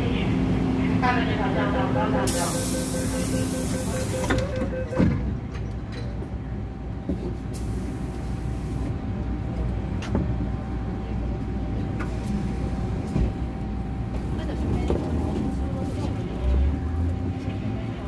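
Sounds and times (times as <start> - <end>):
train low hum: 0.0 - 18.0
train doors closing thump: 4.0 - 5.7.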